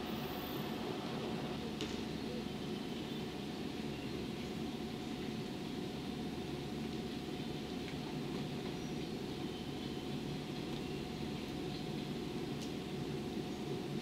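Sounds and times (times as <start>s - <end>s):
electric train rumbling: 0.0s - 6.7s
faint constant hum: 0.0s - 14.0s.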